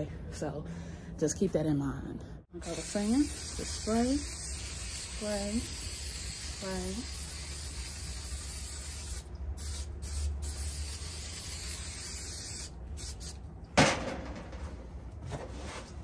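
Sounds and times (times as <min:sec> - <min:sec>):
aerosol can hissing: 0:02.6 - 0:13.4.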